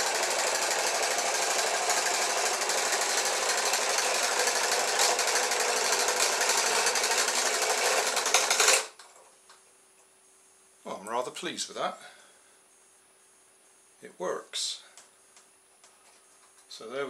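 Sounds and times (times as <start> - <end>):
small electric motor running: 0.0 - 9.0.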